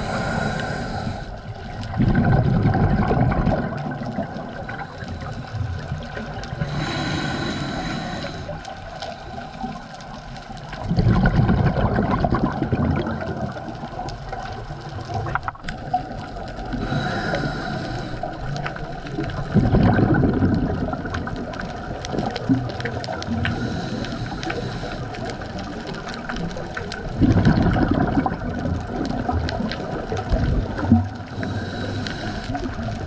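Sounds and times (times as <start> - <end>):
hissing regulator inhalations: 0.0 - 1.5, 6.5 - 9.5, 16.7 - 18.8, 23.4 - 25.4, 31.3 - 32.9
bubbly exhalations: 0.0 - 8.5, 10.8 - 14.3, 15.1 - 24.7, 25.6 - 33.0.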